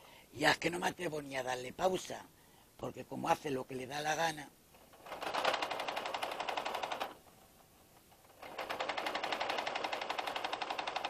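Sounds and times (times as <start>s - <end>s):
sewing machine stitching: 4.8s - 7.3s, 8.1s - 11.0s.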